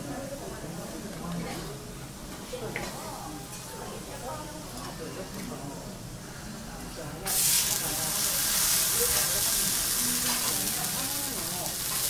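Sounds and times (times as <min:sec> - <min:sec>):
steak sizzling on griddle: 0:07.3 - 0:12.0.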